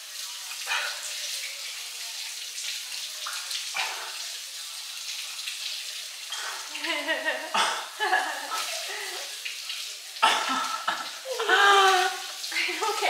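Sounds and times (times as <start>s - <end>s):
water running from tap: 0.0s - 13.0s.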